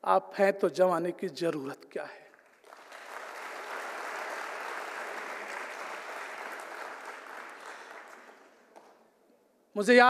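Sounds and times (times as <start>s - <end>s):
audience applauding: 2.3s - 8.9s.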